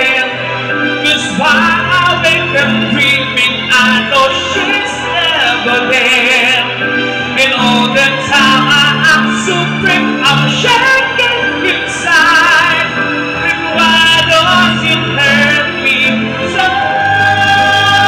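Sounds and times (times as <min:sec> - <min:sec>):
karaoke backing track: 0:00.0 - 0:18.0
person singing amplified: 0:00.0 - 0:18.0.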